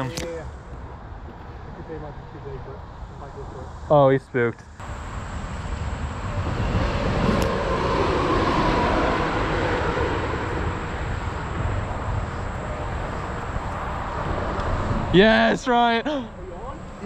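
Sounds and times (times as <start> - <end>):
highway traffic rumble: 0.0 - 17.0
faint droning whine: 4.8 - 17.0.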